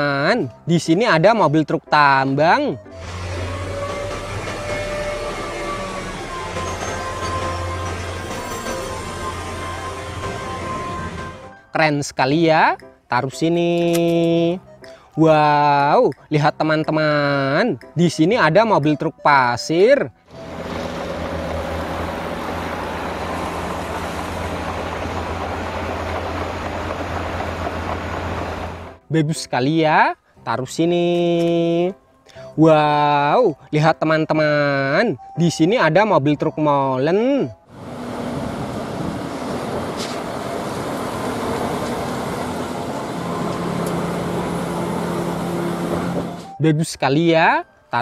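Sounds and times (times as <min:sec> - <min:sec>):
diesel engine running: 0:02.8 - 0:11.7, 0:20.3 - 0:29.1, 0:37.7 - 0:46.6
low hum: 0:20.3 - 0:29.0.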